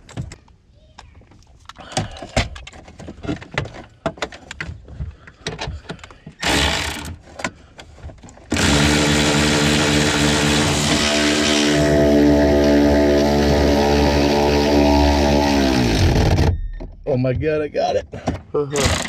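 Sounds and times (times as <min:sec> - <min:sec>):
loud steady motor: 0:08.5 - 0:16.5.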